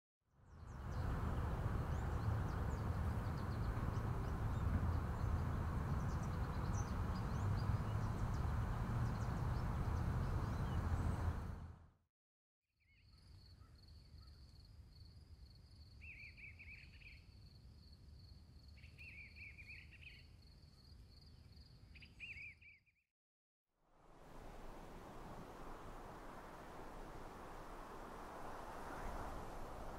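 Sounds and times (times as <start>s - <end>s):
loud steady rushing noise: 24.2s - 29.9s.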